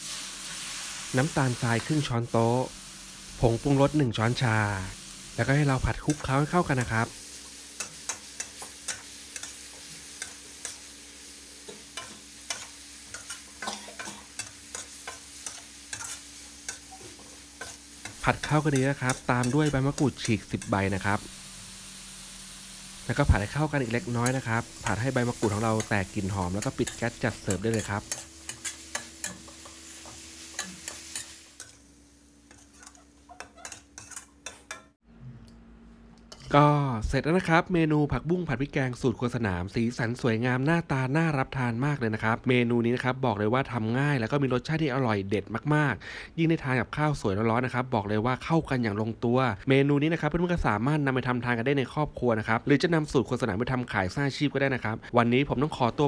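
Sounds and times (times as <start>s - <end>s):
frying sizzle: 0.0s - 35.0s
metal spatula scraping a wok: 11.7s - 21.2s, 22.9s - 31.8s, 32.4s - 34.9s.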